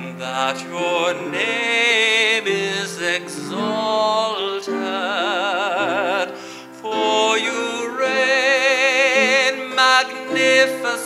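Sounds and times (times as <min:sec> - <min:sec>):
man singing with vibrato: 0:00.0 - 0:11.0.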